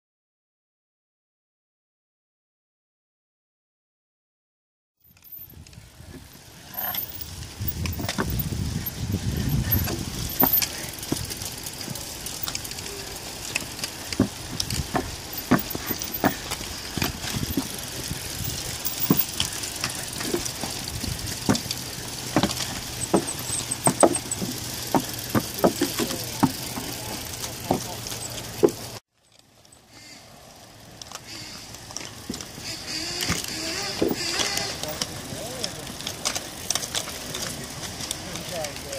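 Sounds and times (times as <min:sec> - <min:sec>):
bikes rattling: 0:05.0 - 0:38.9
shoes striking ground and timber: 0:05.4 - 0:29.0, 0:31.4 - 0:38.9.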